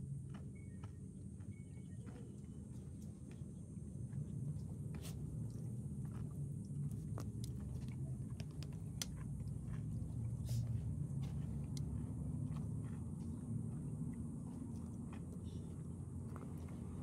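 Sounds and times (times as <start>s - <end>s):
steady low rumble: 0.0s - 17.0s
dog chewing crunching: 4.2s - 17.0s.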